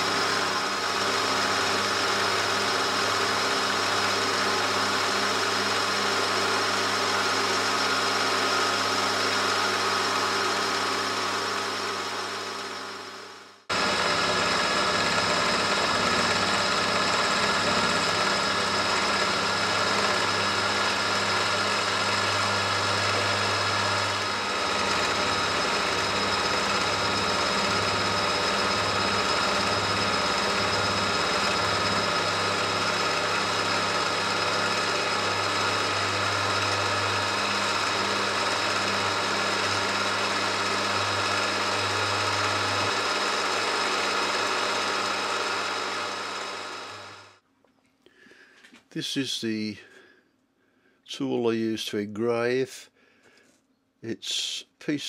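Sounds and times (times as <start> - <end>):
milling machine cutting metal: 0.0 - 47.3.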